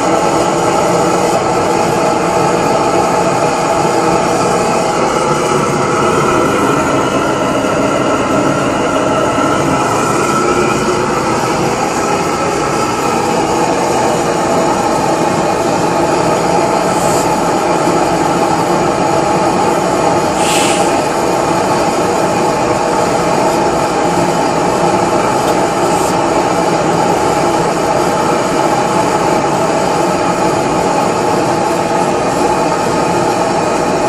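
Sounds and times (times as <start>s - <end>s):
brief hiss: 20.4s - 21.0s.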